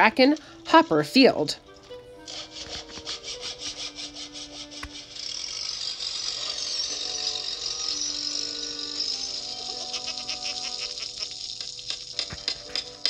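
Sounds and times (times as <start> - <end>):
music of held notes: 0.0 - 13.0
steady high hiss: 0.0 - 13.0
fast even rattle: 2.3 - 9.2.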